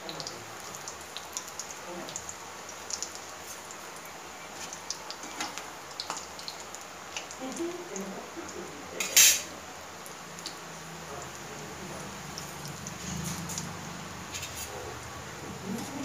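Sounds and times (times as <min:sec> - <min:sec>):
deep-frying sizzling with crackles: 0:00.0 - 0:16.0
loud sharp noise: 0:09.1 - 0:09.5.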